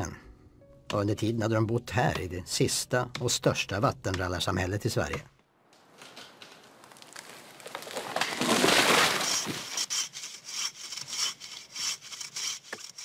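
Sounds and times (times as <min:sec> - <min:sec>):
wood and branches crashing: 0:05.8 - 0:09.8
hand saw rasping through log: 0:09.2 - 0:13.0.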